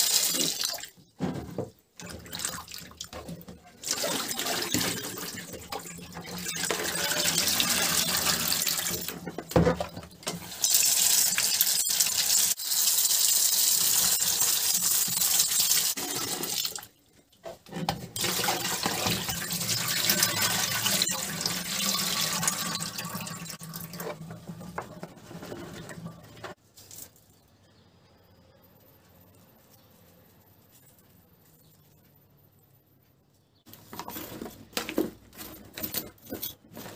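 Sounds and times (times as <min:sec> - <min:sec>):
tap water running into basin: 0:00.0 - 0:01.0, 0:02.0 - 0:16.9, 0:18.2 - 0:26.6
potatoes rinsed by hand: 0:00.0 - 0:26.6.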